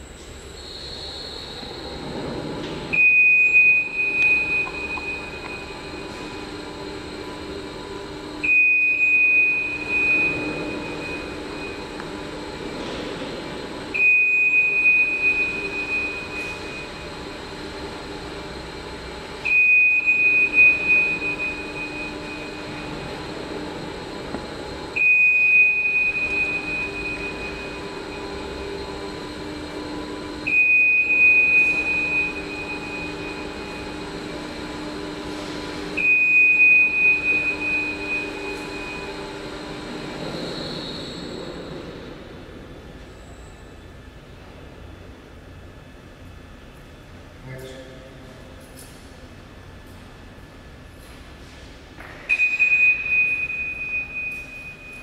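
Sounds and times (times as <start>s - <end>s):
high warning tone: 2.9s - 12.7s, 13.6s - 42.2s, 52.3s - 55.0s.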